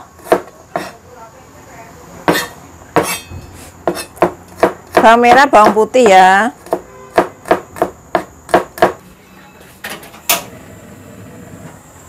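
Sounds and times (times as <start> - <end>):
cleaver chopping on cutting board: 0.2 - 0.9, 2.3 - 3.2, 3.8 - 9.0.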